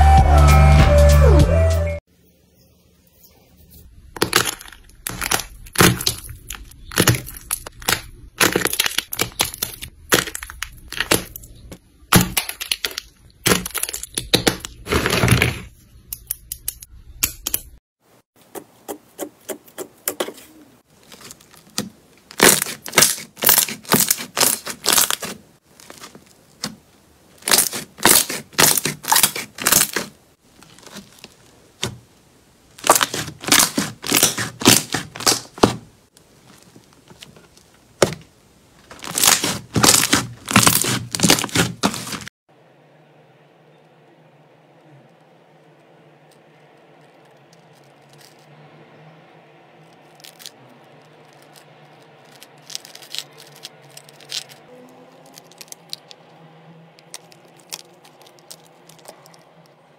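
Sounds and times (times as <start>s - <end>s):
slime crackling when squished: 4.2s - 11.4s, 20.9s - 26.7s, 27.4s - 31.9s, 32.8s - 35.8s, 38.9s - 42.3s, 49.9s - 56.3s, 57.0s - 59.8s.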